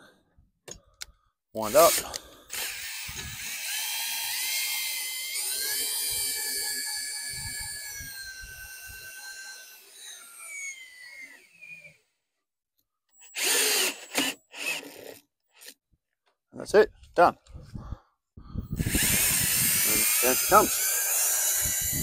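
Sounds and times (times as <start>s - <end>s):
cordless drill motor whine: 1.6s - 12.0s, 13.2s - 15.6s, 18.6s - 22.0s.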